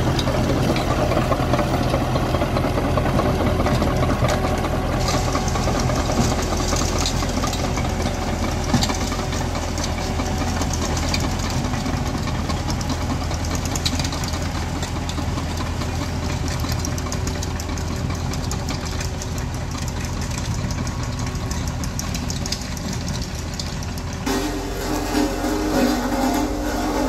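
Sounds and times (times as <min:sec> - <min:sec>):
diesel engine humming: 0:00.0 - 0:27.0
steel tracks clattering: 0:00.0 - 0:27.0
tonal sound: 0:24.3 - 0:27.0.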